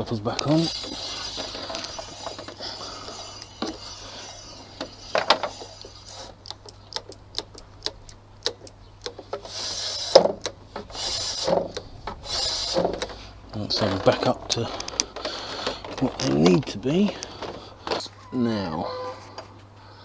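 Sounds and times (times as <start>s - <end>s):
handling and rustling: 9.2s - 18.3s.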